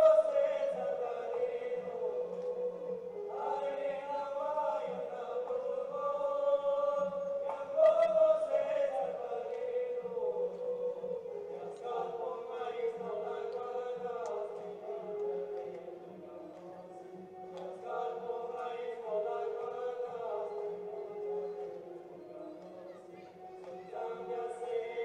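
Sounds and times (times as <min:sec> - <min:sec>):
men chanting in unison: 0:00.0 - 0:16.4, 0:17.4 - 0:21.6, 0:23.6 - 0:25.0.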